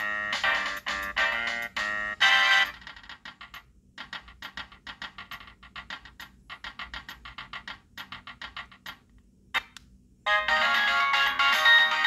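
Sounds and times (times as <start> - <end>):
mobile phone ringtone: 0.0 - 2.8, 10.3 - 12.0.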